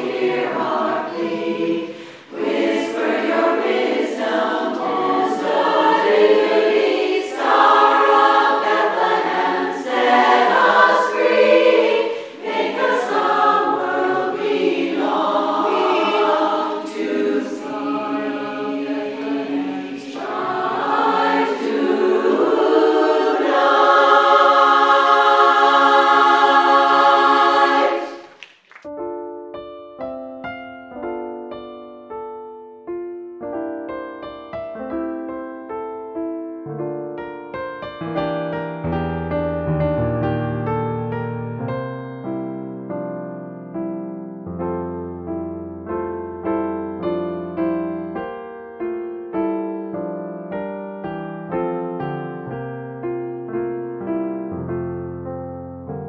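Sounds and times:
women's chorus singing a cappella: 0.0 - 28.3.

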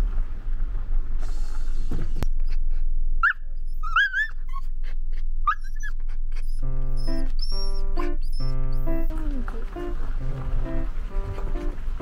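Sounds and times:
dog barking high-pitched: 3.2 - 4.7.

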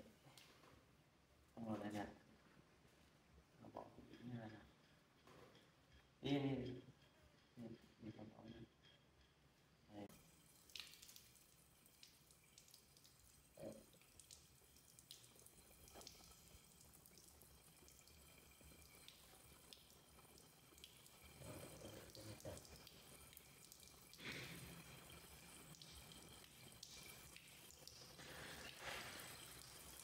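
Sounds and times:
running tap water: 10.1 - 30.0
water drips and splashes: 10.1 - 30.0.

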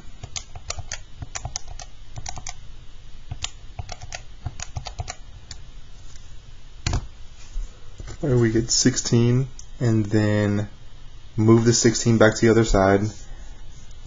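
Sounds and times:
calculator keys clicking: 0.2 - 2.6, 3.3 - 5.2.

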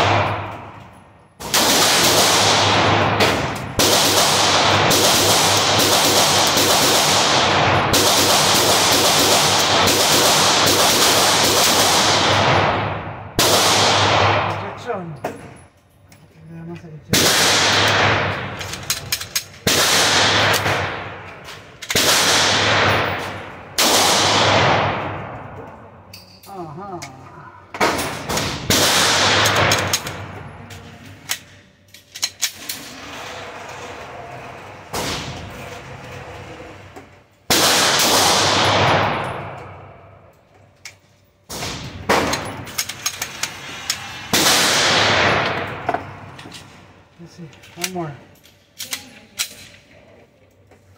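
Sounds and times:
pistol shots with echo: 0.0 - 0.7, 1.4 - 14.7, 17.1 - 18.6, 19.6 - 21.3, 21.9 - 25.5, 27.8 - 30.4, 37.5 - 39.9.

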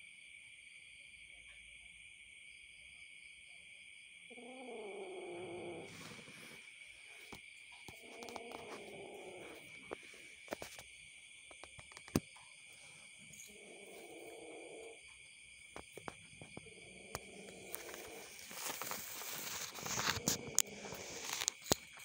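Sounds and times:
crickets chirring: 0.0 - 22.0
kitten growling: 4.3 - 6.6, 7.9 - 10.2, 13.4 - 15.0, 16.5 - 21.6.

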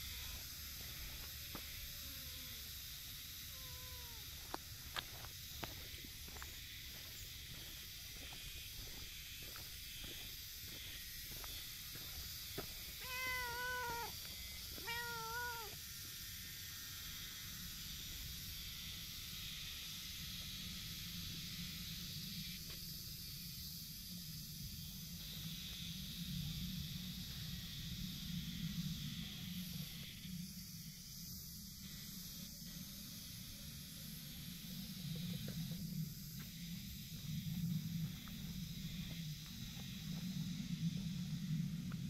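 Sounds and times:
cat meowing: 3.6 - 4.2, 13.0 - 14.2, 14.8 - 15.8.

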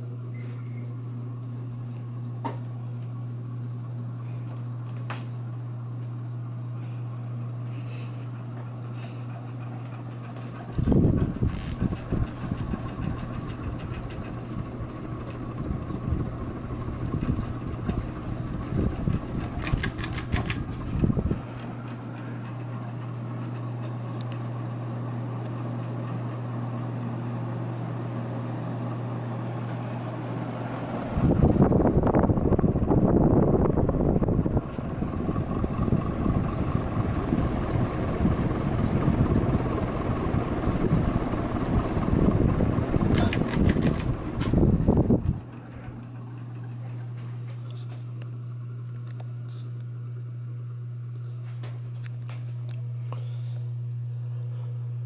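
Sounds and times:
ceiling fan motor hum: 0.0 - 55.0
air rumbling on microphone: 10.6 - 19.6, 20.6 - 22.4, 31.1 - 46.0.

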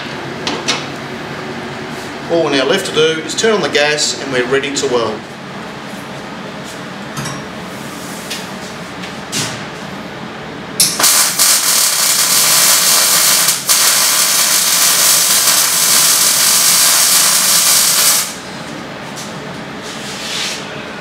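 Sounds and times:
welding arc sizzling hiss: 10.8 - 18.4.

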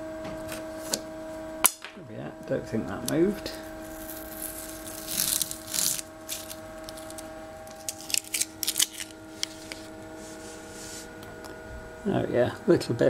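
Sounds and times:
masking tape peeling: 3.8 - 11.0
tape clicking and crinkling: 3.9 - 10.0.

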